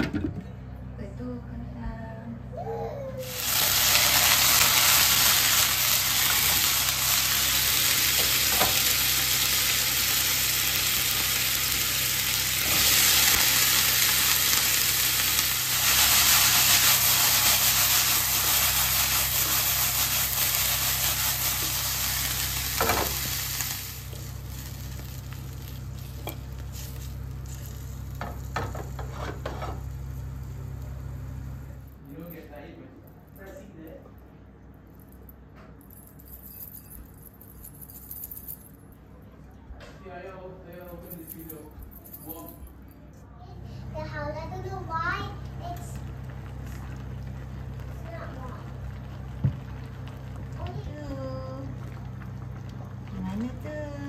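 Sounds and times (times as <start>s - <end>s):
broccoli sizzling in a frying pan: 3.2s - 31.2s, 45.4s - 53.7s.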